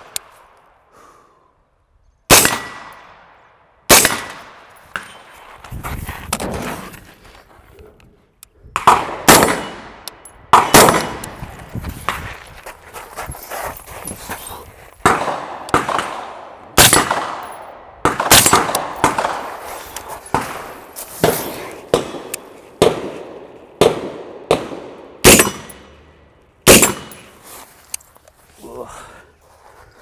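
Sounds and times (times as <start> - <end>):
gunshots echoing: 2.3 - 5.3, 8.8 - 11.4, 15.0 - 19.7, 20.3 - 27.4.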